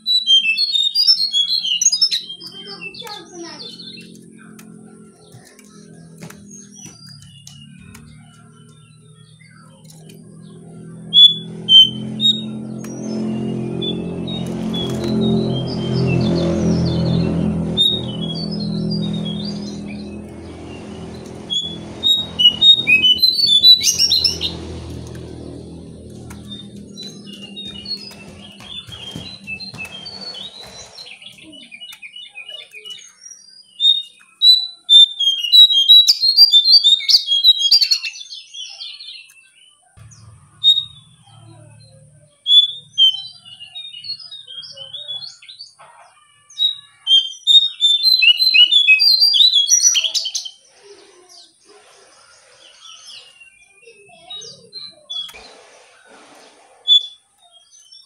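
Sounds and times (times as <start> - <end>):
songbird chirping and twittering: 0.0 - 58.0
low steady hum: 3.6 - 31.6, 40.0 - 44.4.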